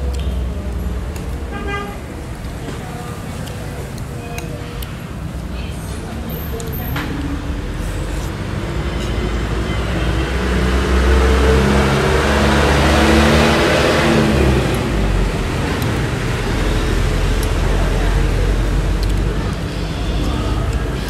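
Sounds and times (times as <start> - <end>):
low traffic rumble: 0.0 - 21.0
vehicle driving past: 7.1 - 21.0.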